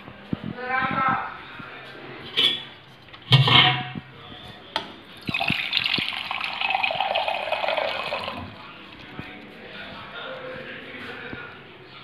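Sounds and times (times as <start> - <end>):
steel utensil clanking: 2.3 - 3.9
water pouring into a vessel: 5.2 - 9.2.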